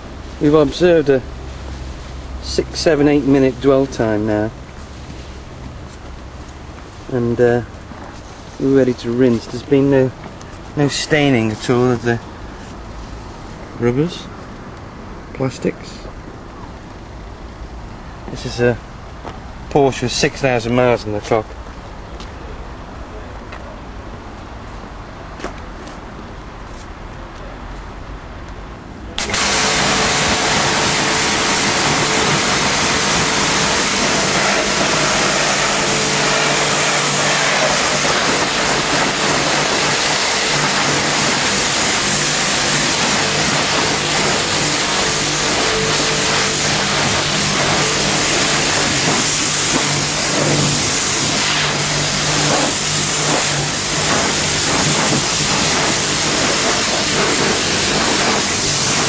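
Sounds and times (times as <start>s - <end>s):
pressure washer spraying: 29.2s - 59.0s.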